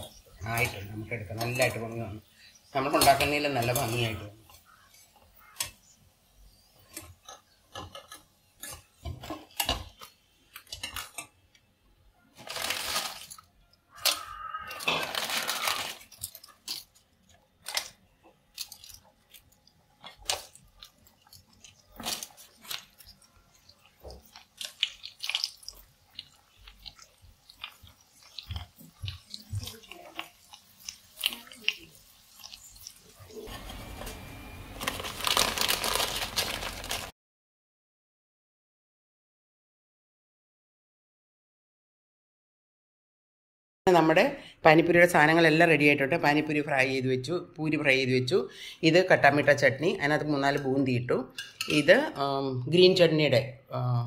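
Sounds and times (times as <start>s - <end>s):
sizzling in hot oil: 0.0s - 11.4s, 19.0s - 37.1s
crisp shells crunching and clattering: 12.4s - 37.1s.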